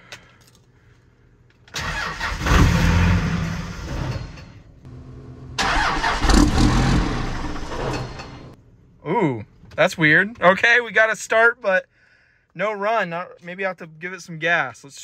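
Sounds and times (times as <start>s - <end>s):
diesel engine cranking on starter: 1.7s - 4.4s, 5.6s - 8.6s
diesel engine firing: 1.8s - 4.5s, 5.2s - 8.6s.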